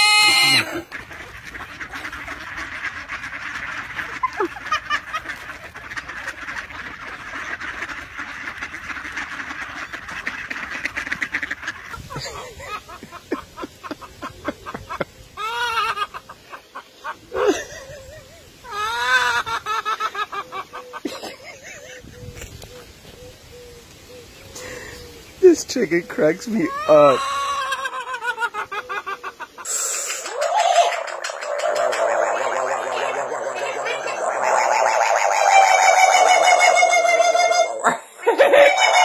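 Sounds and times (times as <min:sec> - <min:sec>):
loud duck calls: 0:00.0 - 0:12.9, 0:26.5 - 0:33.3
flock of ducks quacking: 0:00.0 - 0:22.6, 0:24.6 - 0:39.0.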